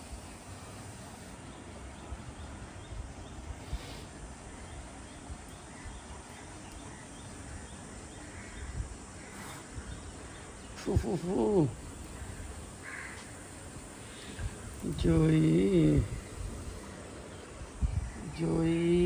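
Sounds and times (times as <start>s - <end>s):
faint outdoor background: 0.0s - 19.0s
crow cawing: 7.5s - 10.5s, 12.1s - 14.3s.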